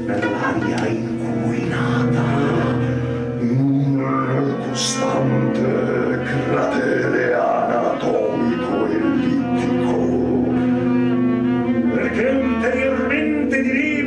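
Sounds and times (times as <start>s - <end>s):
man's low vocal drone: 0.0s - 10.9s
violin bowed: 0.0s - 14.0s.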